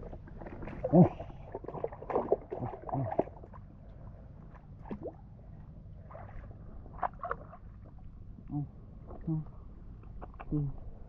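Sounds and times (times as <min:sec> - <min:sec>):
water sloshing and dripping: 0:00.0 - 0:08.2
soft water splashes: 0:00.0 - 0:09.5.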